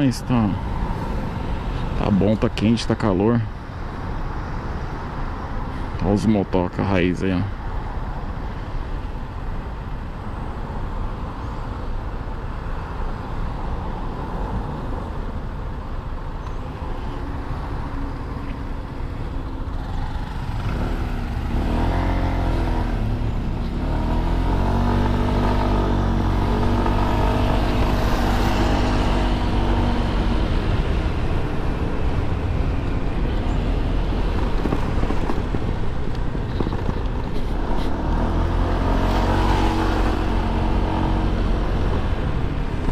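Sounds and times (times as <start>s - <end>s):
road and wind noise: 0.0s - 42.9s.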